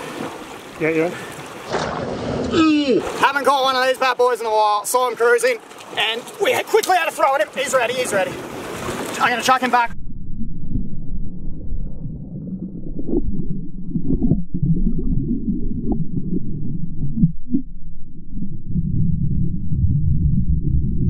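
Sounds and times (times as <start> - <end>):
muffled underwater rumble: 9.9 - 21.0.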